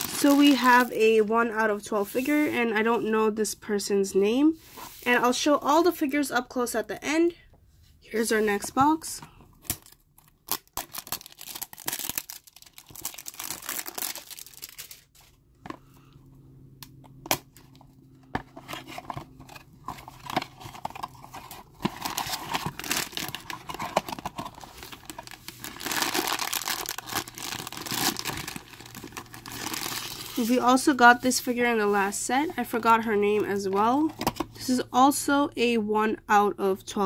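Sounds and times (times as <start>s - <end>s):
foil bag crinkling: 0.0s - 1.0s, 9.8s - 15.3s, 19.0s - 30.6s.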